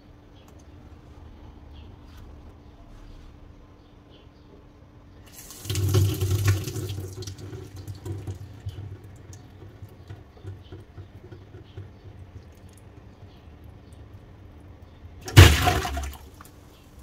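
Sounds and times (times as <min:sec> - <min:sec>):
faucet water filling balloon: 0:05.3 - 0:11.9.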